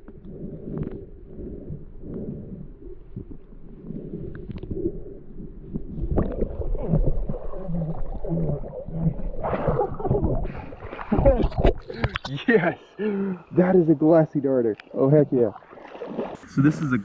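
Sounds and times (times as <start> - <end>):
muffled underwater rumble: 0.0 - 12.2
water sloshing and splashing: 5.6 - 12.4, 14.8 - 16.5.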